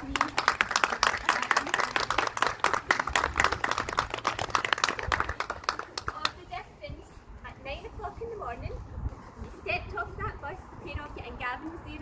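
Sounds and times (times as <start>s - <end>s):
people clapping: 0.0s - 6.4s.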